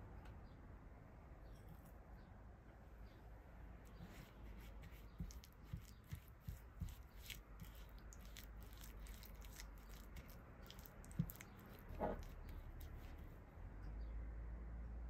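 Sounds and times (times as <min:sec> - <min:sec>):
spatula scraping in glass bowl: 0:05.2 - 0:13.3.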